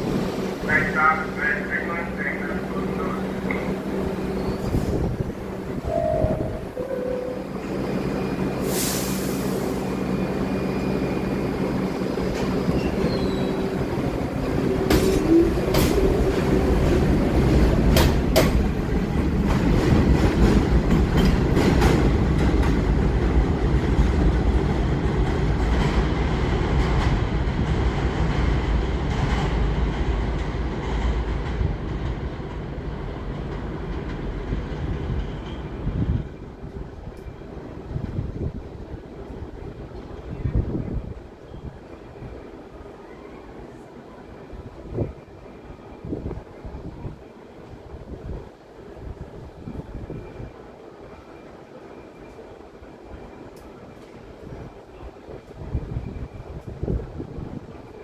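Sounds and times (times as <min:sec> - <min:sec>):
train rumble: 0:00.0 - 0:58.0
air hiss: 0:08.6 - 0:09.8
wheel squeal: 0:12.7 - 0:13.7.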